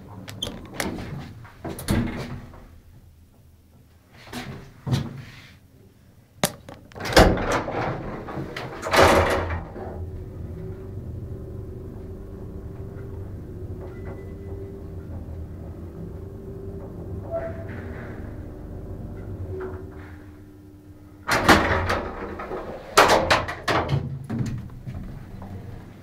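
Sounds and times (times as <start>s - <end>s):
elevator car humming: 7.0s - 26.0s
elevator doors rattling shut: 7.0s - 26.0s.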